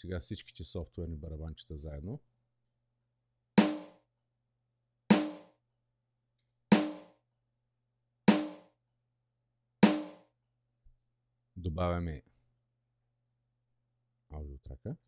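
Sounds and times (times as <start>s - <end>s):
snare drum hits: 3.6s - 4.0s, 5.1s - 5.5s, 6.8s - 7.1s, 8.3s - 8.6s, 9.8s - 10.2s.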